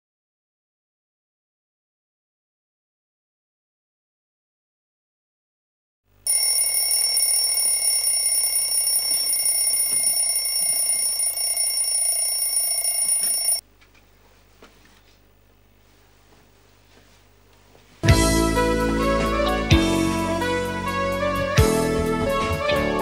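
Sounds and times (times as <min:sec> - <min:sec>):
alarm clock ringing: 0:06.3 - 0:13.6.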